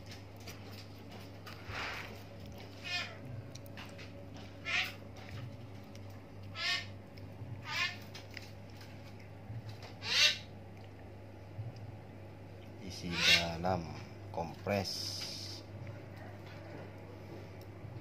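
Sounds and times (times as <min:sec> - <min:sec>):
steady low hum: 0:00.0 - 0:18.0
high-pitched animal calls: 0:02.8 - 0:03.2, 0:04.6 - 0:05.0, 0:06.5 - 0:07.0, 0:07.6 - 0:08.1, 0:10.0 - 0:10.5, 0:13.1 - 0:13.6.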